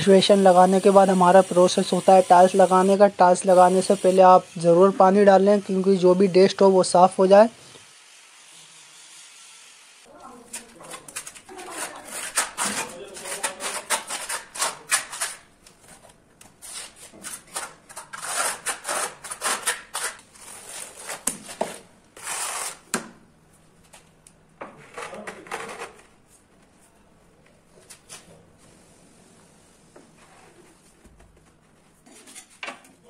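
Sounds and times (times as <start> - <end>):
steel trowel scraping adhesive: 0.2 - 4.7, 11.4 - 15.5, 16.6 - 21.2, 22.2 - 22.8.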